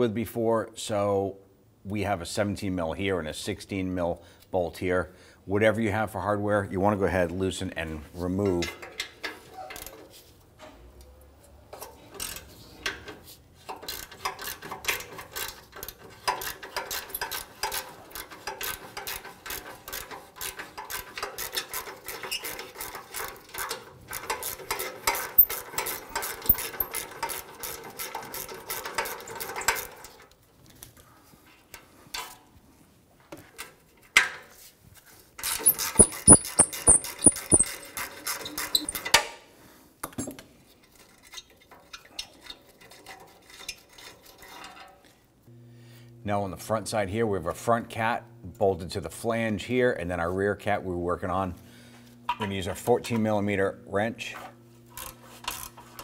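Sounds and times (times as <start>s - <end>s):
ratchet wrench clicking: 24.4s - 27.0s, 35.6s - 37.8s.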